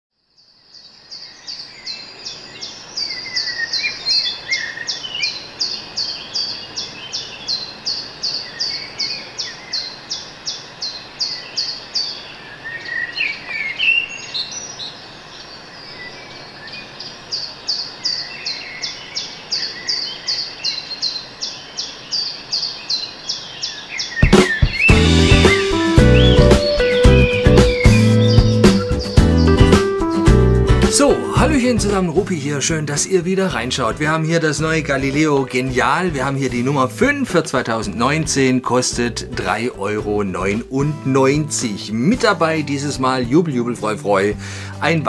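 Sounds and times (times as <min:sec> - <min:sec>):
bird chirping: 0:00.2 - 0:45.0
other bird calls: 0:01.1 - 0:31.3.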